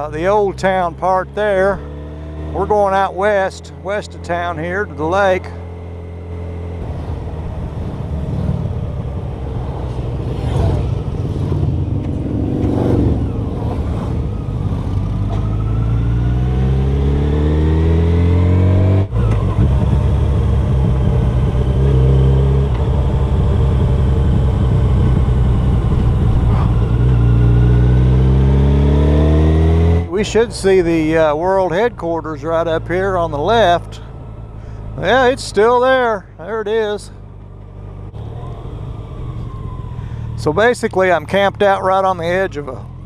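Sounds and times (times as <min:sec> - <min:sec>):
motorcycle engine accelerating: 0:00.0 - 0:43.0
wind noise: 0:22.7 - 0:27.9.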